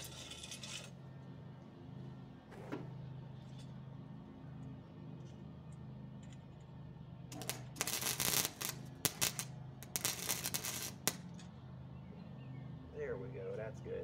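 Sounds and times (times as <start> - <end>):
welder arc crackling and sputtering: 7.3 - 11.4.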